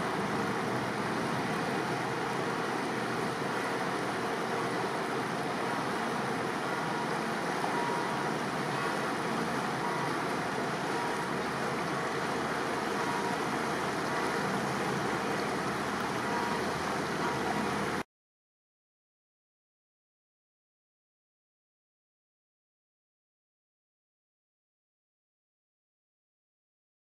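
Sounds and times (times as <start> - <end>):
boat engine hum: 0.0 - 18.0
rushing water and air: 0.0 - 18.0.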